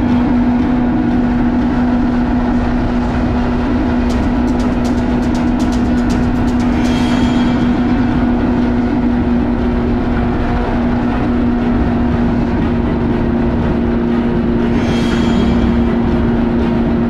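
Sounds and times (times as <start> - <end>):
jet ski engine running: 0.0 - 17.0.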